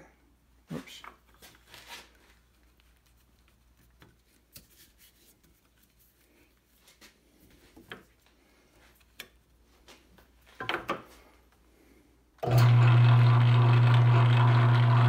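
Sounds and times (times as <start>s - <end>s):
lathe motor humming: 12.4s - 15.0s.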